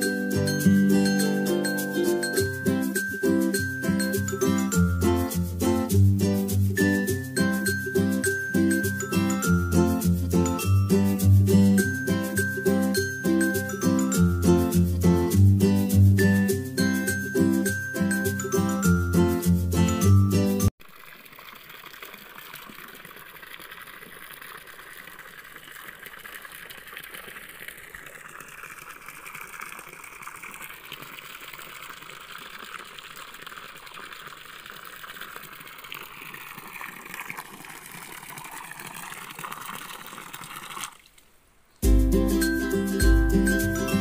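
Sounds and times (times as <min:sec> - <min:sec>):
fountain splashing into pond: 0:00.0 - 0:14.1, 0:20.8 - 0:41.3.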